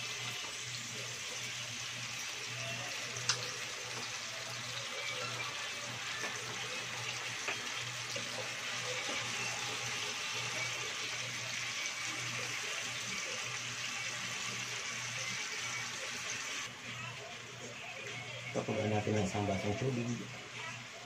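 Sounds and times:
chicken sizzling in frying pan: 0.0 - 16.7
spatula turning food: 0.0 - 19.7.

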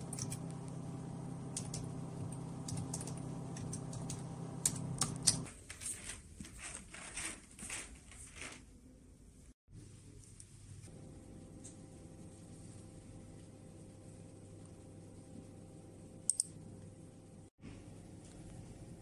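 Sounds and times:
steady low hum: 0.0 - 5.5, 9.7 - 19.0
computer keyboard typing: 1.5 - 1.9, 2.6 - 5.5.

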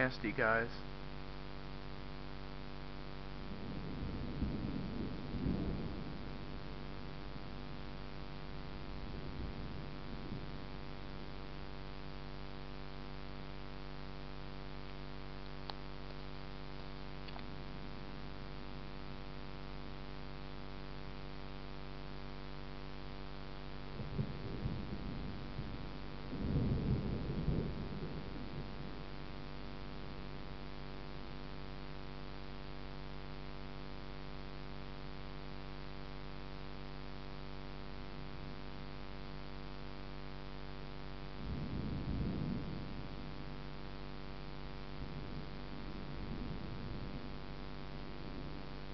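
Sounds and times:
electrical hum: 0.0 - 48.9
distant thunder rumbling: 3.5 - 6.5, 24.0 - 29.1.

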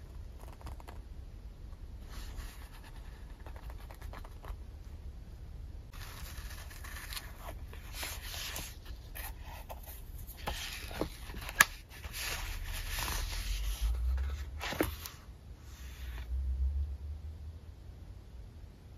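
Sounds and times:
paper pages rustling: 5.9 - 15.3.

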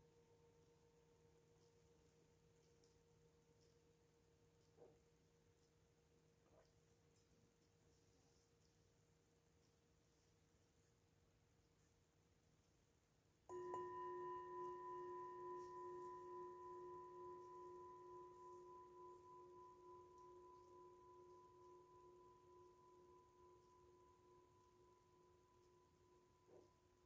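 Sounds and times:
singing bowl struck and ringing: 13.5 - 27.0.

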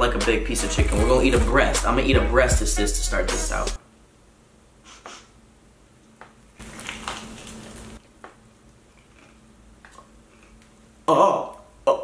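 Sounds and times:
crunchy chewing of fried chicken: 6.6 - 10.9.

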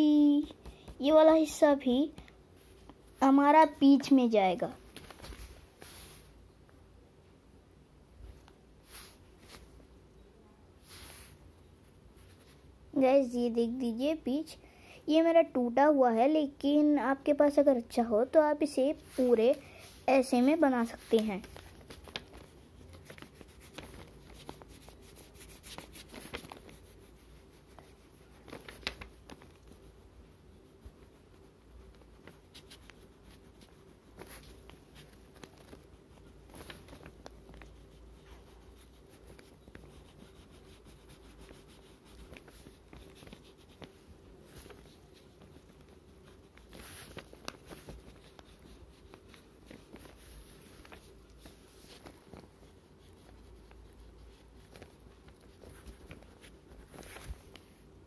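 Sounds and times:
faint steady hum: 0.0 - 58.0
crayon scratching on paper: 18.6 - 57.2.

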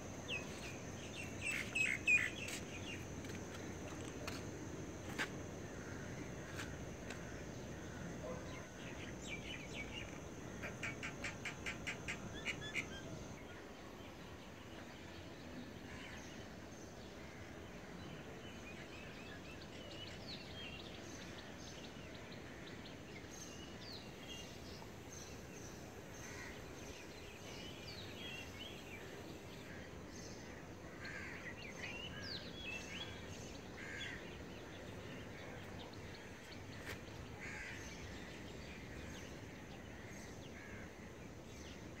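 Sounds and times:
low background noise: 0.0 - 42.0.

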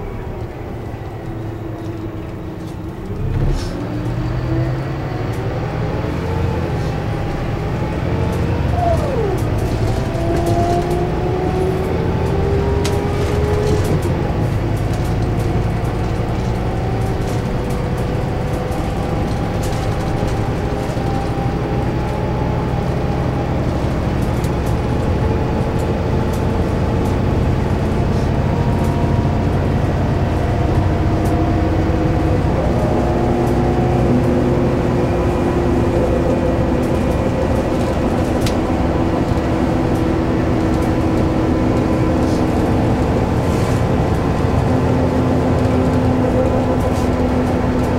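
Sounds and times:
bus diesel engine drone: 0.0 - 47.9.

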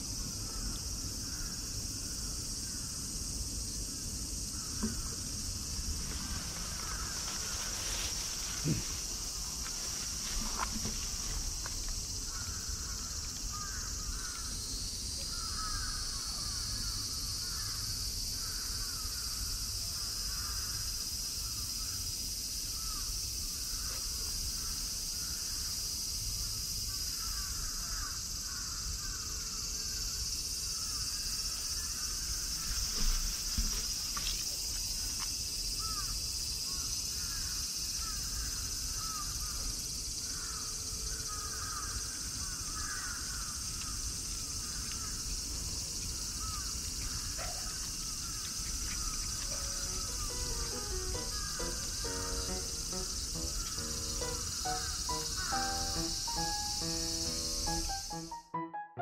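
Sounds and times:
insects droning: 0.0 - 58.4
chirping animal calls: 48.8 - 58.2.

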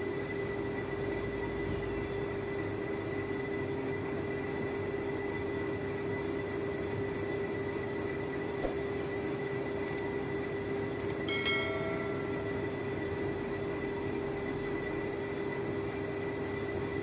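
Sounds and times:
short chime: 11.3 - 12.8.

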